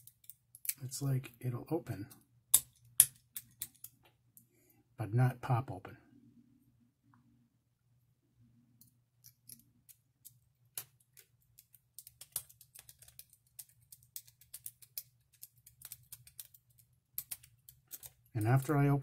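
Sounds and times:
lock pick raking padlock pins: 0.0s - 0.8s, 2.5s - 4.1s, 8.8s - 18.8s.

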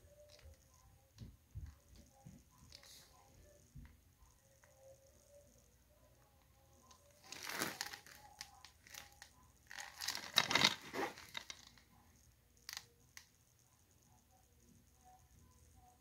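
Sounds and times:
shrink-wrap crinkling: 7.1s - 11.8s.

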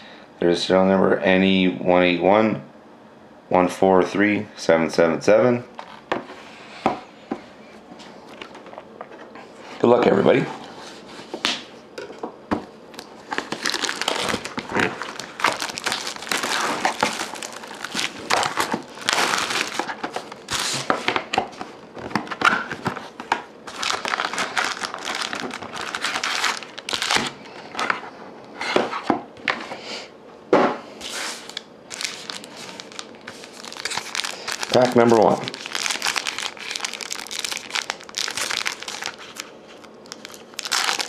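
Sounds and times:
plastic wrap crinkling and tearing: 13.0s - 20.9s, 22.1s - 27.9s, 31.0s - 41.0s
card packs rustling: 13.0s - 28.1s, 31.0s - 41.0s.

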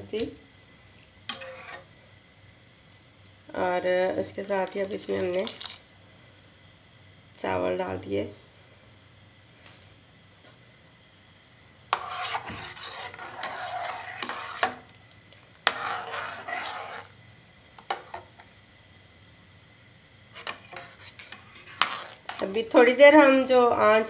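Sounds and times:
spoon scraping a steel pot: 1.3s - 1.9s, 11.9s - 14.9s, 15.6s - 17.1s, 20.4s - 22.5s.

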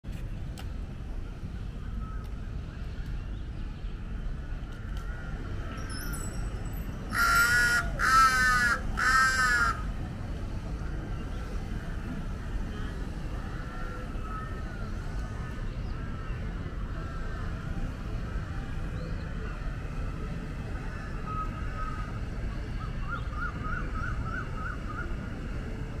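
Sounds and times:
crow cawing: 7.1s - 9.8s.

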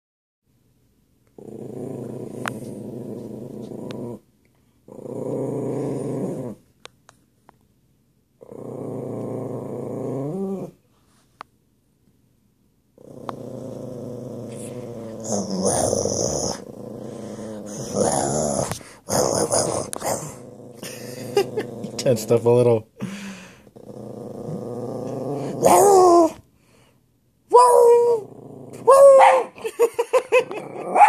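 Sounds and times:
dog growling: 1.4s - 4.2s, 4.9s - 6.7s, 8.4s - 10.8s, 13.0s - 26.4s, 27.8s - 31.0s.

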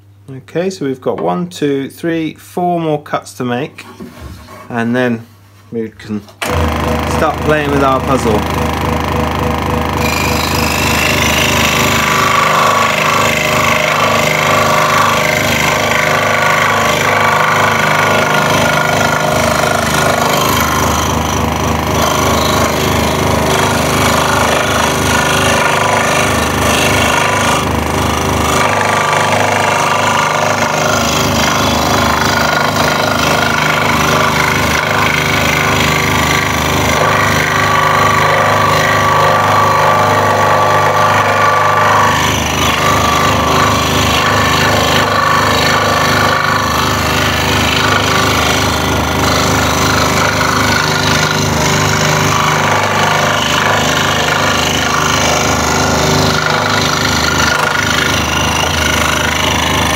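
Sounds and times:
scroll saw cutting wood: 6.4s - 59.9s.

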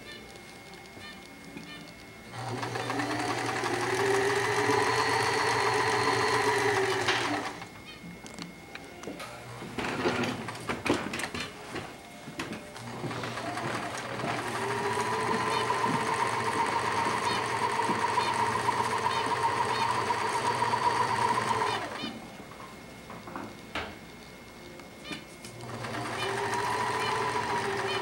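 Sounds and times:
sewing machine stitching: 2.3s - 7.7s, 9.8s - 11.4s, 12.9s - 22.1s, 25.6s - 28.0s.

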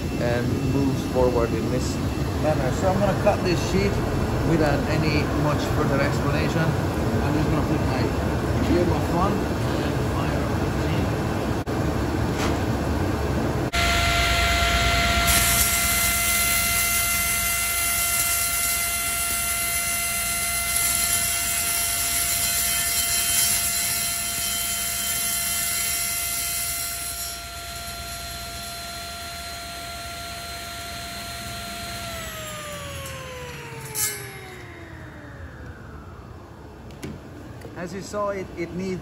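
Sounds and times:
table saw motor whine: 0.0s - 9.3s, 13.7s - 37.6s
saw blade coasting down: 13.8s - 36.6s
saw blade cutting plastic sheet: 15.1s - 27.6s, 30.1s - 34.9s.

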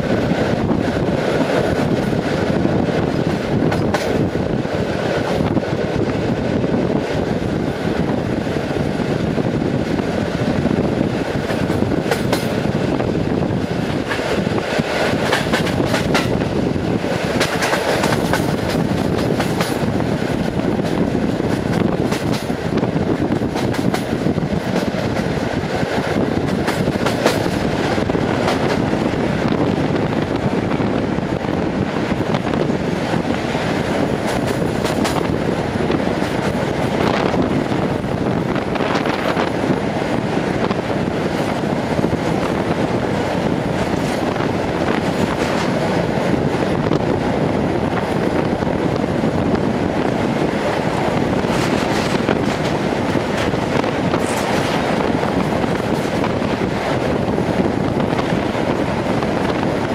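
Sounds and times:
freight train passing: 0.0s - 59.9s
train rumble and rushing air: 0.0s - 59.9s
wheels clacking over rail joints: 13.6s - 22.7s, 50.0s - 59.9s.

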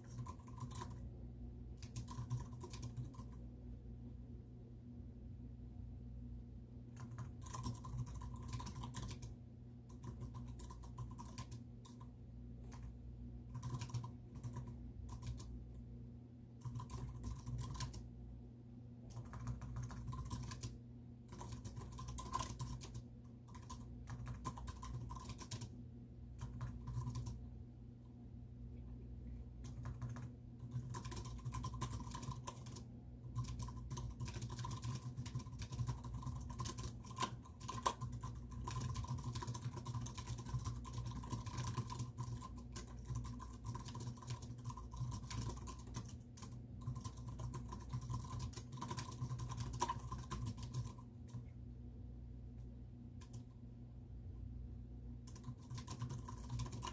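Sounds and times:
keyboard typing: 0.0s - 1.0s, 1.8s - 3.4s, 6.9s - 15.6s, 16.6s - 18.1s, 19.1s - 25.7s, 26.4s - 27.4s, 29.6s - 51.5s, 53.2s - 53.5s, 55.2s - 56.9s.

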